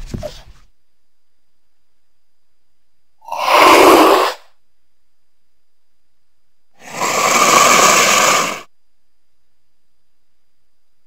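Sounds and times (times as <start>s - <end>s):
cougar hissing: 3.2s - 4.6s, 6.8s - 8.7s.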